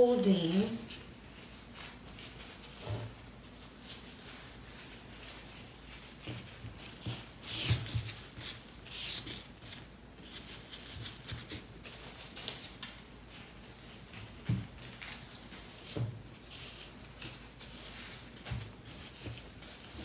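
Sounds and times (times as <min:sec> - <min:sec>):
fabric rustling: 0:00.0 - 0:20.0.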